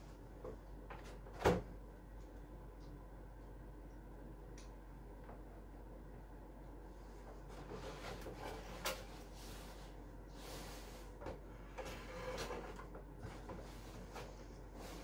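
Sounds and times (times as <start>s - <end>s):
tv rubbing and scraping on wall: 7.4s - 15.0s.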